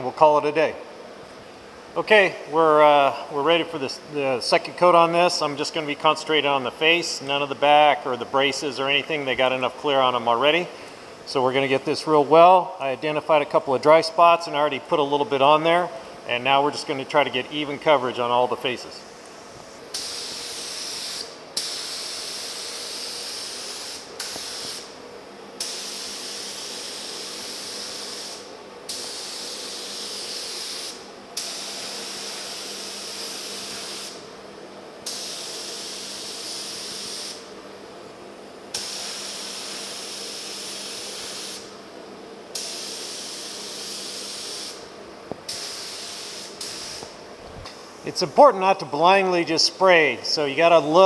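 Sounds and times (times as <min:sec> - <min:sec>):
paint spray gun hissing: 0:19.1 - 0:25.0, 0:25.6 - 0:34.3, 0:35.0 - 0:37.5, 0:38.7 - 0:41.8, 0:42.5 - 0:48.0.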